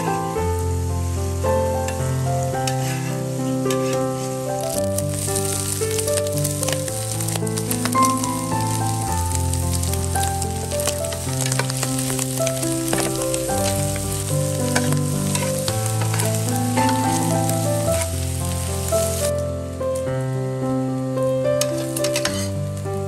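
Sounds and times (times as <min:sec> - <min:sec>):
background music with held notes: 0:00.0 - 0:23.0
food sizzling in a pan: 0:00.0 - 0:23.0
metal spatula scraping pan: 0:02.6 - 0:04.4, 0:10.8 - 0:18.2, 0:21.6 - 0:22.6.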